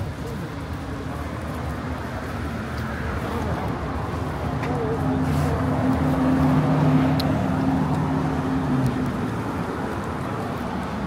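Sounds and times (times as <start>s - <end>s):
traffic noise: 0.0s - 11.0s
vehicle engine passing: 2.4s - 11.0s.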